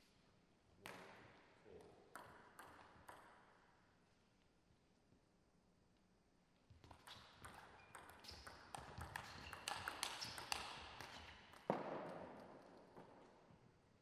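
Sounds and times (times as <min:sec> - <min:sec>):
table tennis ball clicking: 0:02.2 - 0:03.4, 0:06.9 - 0:11.7.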